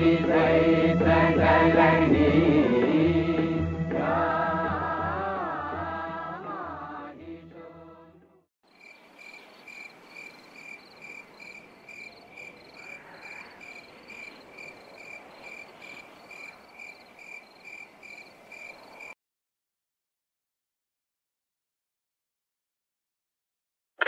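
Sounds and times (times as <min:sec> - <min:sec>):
faint background hiss: 0:08.7 - 0:19.1
cricket chirping: 0:08.7 - 0:19.2.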